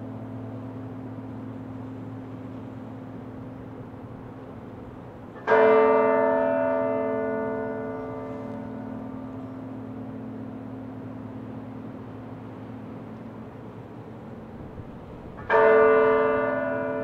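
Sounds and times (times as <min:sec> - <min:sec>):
church bell tolling: 0:05.4 - 0:10.8, 0:15.4 - 0:17.0.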